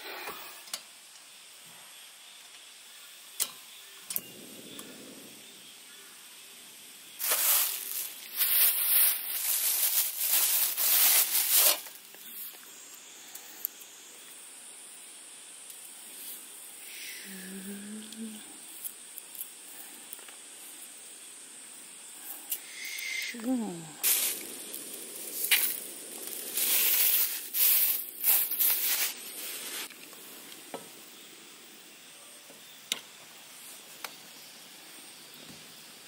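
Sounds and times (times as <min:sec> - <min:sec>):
gas stove hiss: 0:00.0 - 0:36.0
plastic bag crinkling: 0:07.2 - 0:12.2, 0:24.0 - 0:30.0.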